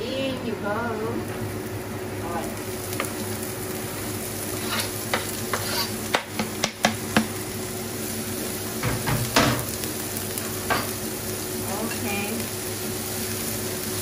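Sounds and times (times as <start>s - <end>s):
carrot sizzling in a frying pan: 0.0s - 14.0s
cleaver scraping chopping board: 5.5s - 5.9s.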